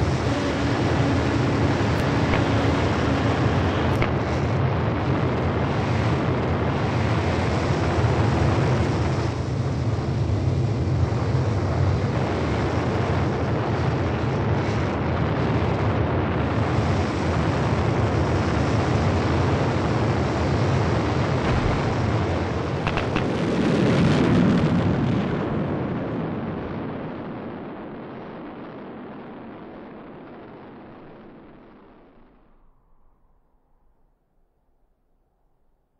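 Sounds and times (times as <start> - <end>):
rushing roar with deep rumble: 0.0 - 27.2.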